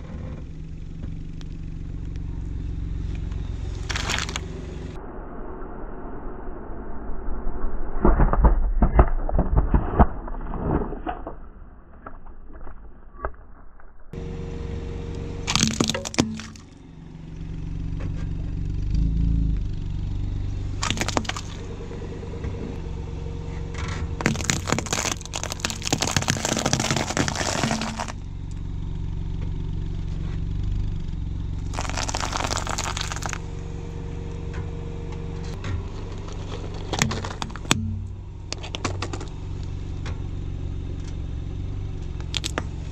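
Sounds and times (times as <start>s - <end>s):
cans crunching under tyre: 3.7s - 4.5s, 15.5s - 16.8s, 20.8s - 21.7s, 24.2s - 28.2s, 31.6s - 33.4s, 35.9s - 39.3s, 42.2s - 42.9s
plastic toys cracking: 3.9s - 4.4s, 15.5s - 16.7s, 20.8s - 21.6s, 24.2s - 28.2s, 31.7s - 33.4s, 36.3s - 37.8s, 42.2s - 42.9s
steady low hum: 14.0s - 42.9s.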